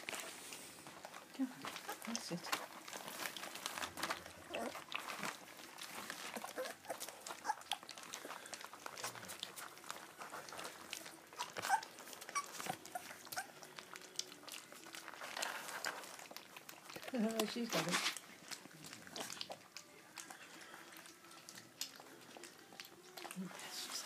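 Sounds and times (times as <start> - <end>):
puppies lapping milk: 0.0 - 24.0
puppies squeaking: 1.7 - 8.2, 9.1 - 19.7.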